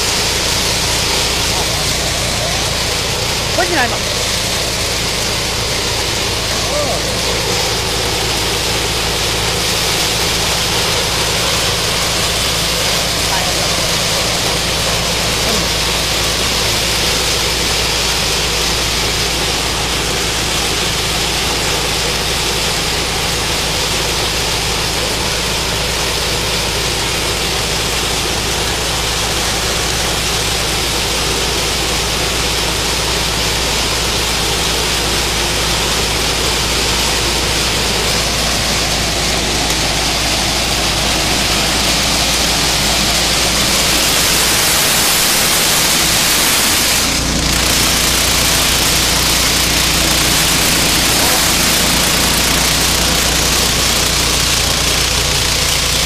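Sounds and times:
combine harvester engine hum: 0:00.0 - 0:56.0
machine rushing noise: 0:00.0 - 0:56.0.

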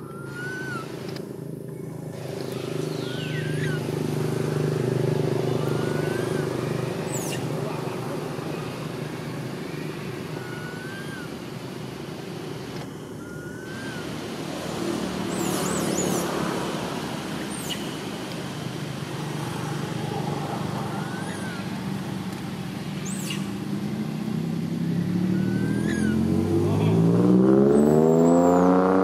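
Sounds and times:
high-pitched chirps and whistles: 0:00.0 - 0:00.9, 0:02.5 - 0:03.9, 0:04.6 - 0:06.5, 0:10.4 - 0:11.3, 0:13.2 - 0:14.1, 0:15.2 - 0:16.3, 0:20.9 - 0:21.7, 0:23.0 - 0:23.5, 0:25.3 - 0:26.3
road traffic rumble: 0:00.0 - 0:29.0.

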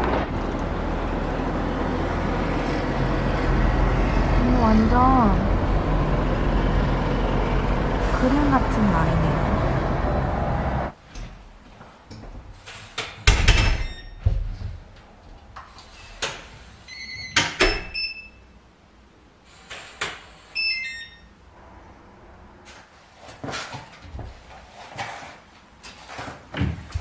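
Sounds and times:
electronic lock beeps: 0:17.8 - 0:18.4, 0:20.6 - 0:21.3.

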